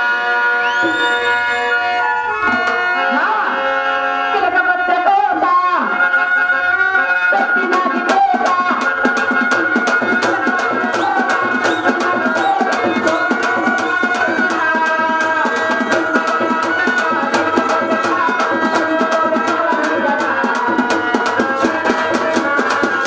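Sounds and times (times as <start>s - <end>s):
hand drums fast rhythm: 8.0s - 23.0s.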